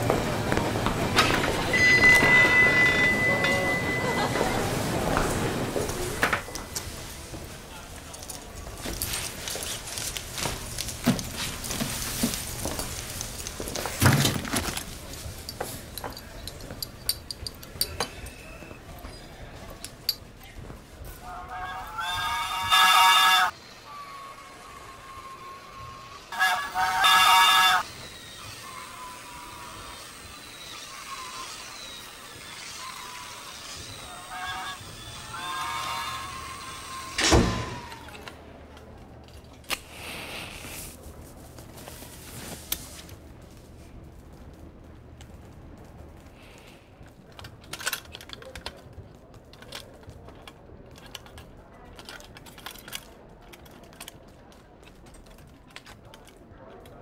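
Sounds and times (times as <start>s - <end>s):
cups and cutlery clinking: 15.4s - 18.5s.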